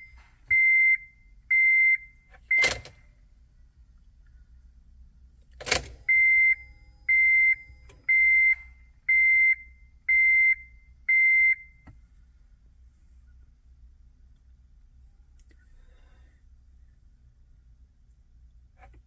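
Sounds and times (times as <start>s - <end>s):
ignition key click: 2.4s - 3.0s, 5.4s - 6.1s, 7.8s - 8.1s.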